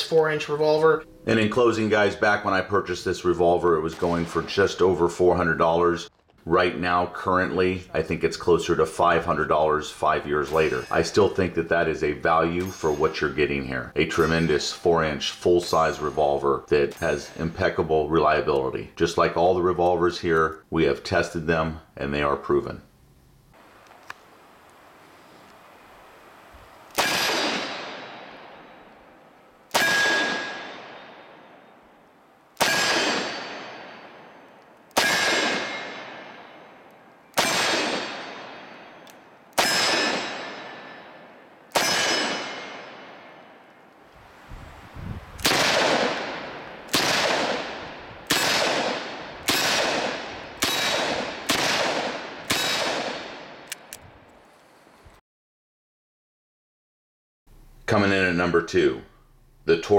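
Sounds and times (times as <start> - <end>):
revolver shots echoing: 26.9 - 43.9, 45.4 - 53.7.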